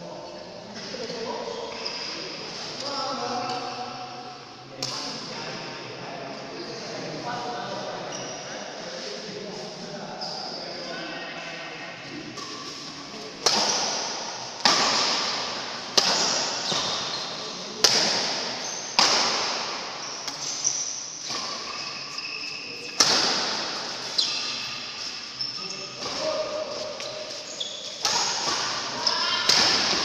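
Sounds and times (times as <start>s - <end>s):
rackets striking shuttlecock: 13.4s - 17.0s
short high squeaks: 21.4s - 22.9s, 24.1s - 26.0s, 27.4s - 28.0s.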